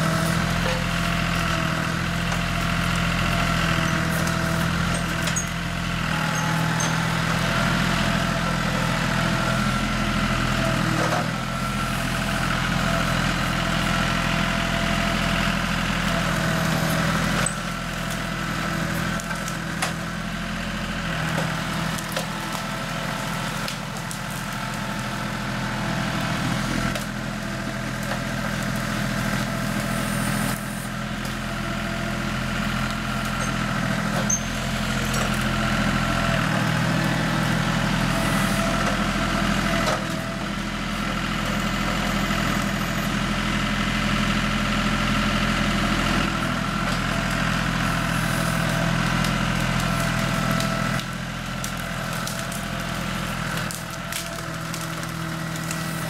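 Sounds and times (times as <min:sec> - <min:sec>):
tractor diesel engine running: 0:00.0 - 0:56.0.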